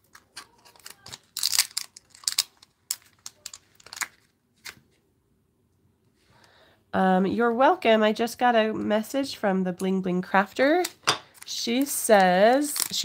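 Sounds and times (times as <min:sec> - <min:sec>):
plastic sheet crinkling: 0:00.0 - 0:04.8, 0:10.6 - 0:13.0.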